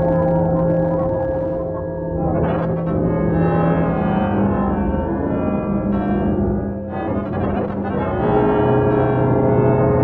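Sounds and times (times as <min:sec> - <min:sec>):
electronic music sustained tones: 0:00.0 - 0:04.1.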